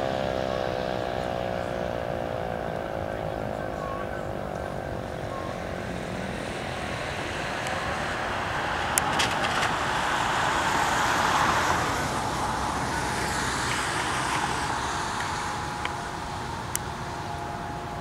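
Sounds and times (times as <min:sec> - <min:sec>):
tyre hiss on wet road: 0:07.0 - 0:15.8.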